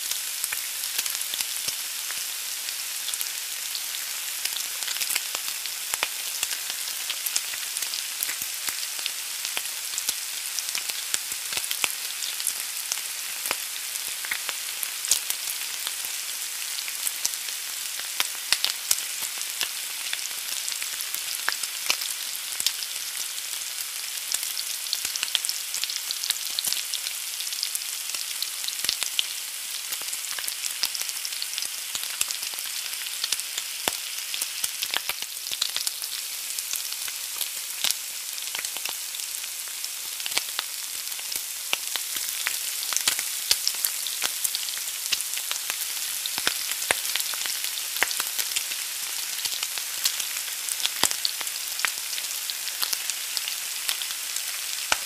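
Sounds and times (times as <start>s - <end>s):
egg sizzling in a pan: 0.0s - 55.0s.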